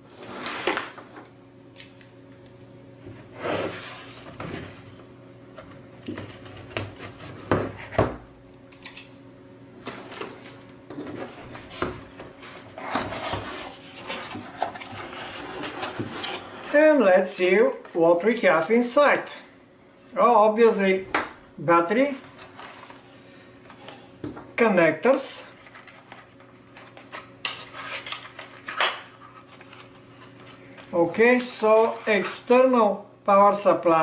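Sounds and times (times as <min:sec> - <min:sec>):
faint steady hum: 0:00.0 - 0:34.0
cardboard rubbing and scraping: 0:03.3 - 0:04.8, 0:11.2 - 0:16.8.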